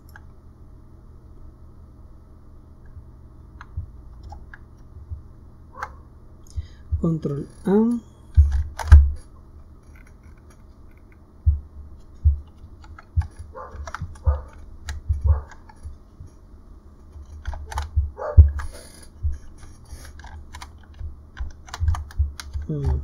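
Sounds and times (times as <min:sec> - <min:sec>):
computer keyboard keystrokes: 0:12.4 - 0:15.9, 0:17.2 - 0:18.8, 0:20.1 - 0:23.0.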